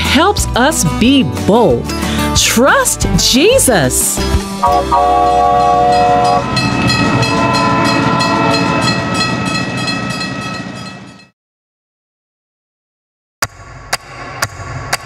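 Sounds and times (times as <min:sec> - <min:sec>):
train horn chord: 0:04.6 - 0:09.3.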